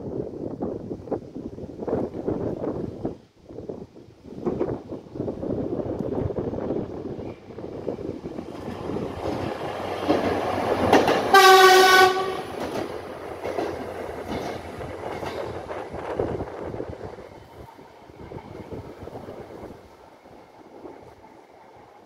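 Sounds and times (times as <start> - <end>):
railbus running noise: 0.0 - 22.0
wheels on rails: 7.2 - 22.0
train horn blast: 11.3 - 12.6.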